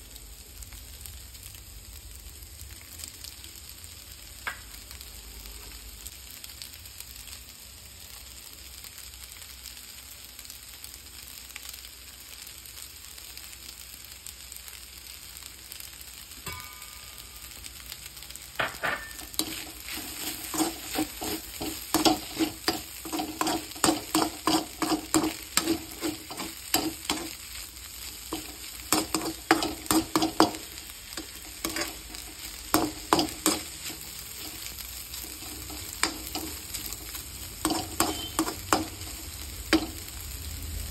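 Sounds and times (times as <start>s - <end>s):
noodles sizzling in a wok: 0.0s - 40.9s
metal spatula clanking on wok: 16.4s - 17.2s, 18.6s - 19.6s, 37.6s - 39.1s.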